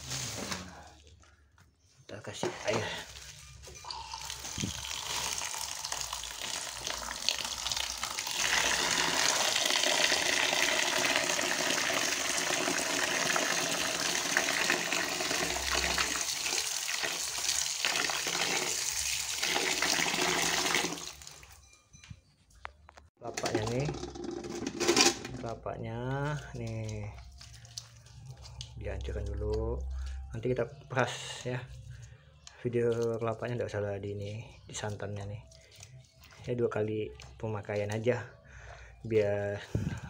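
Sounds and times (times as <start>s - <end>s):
water pouring into bowl: 3.8s - 21.6s.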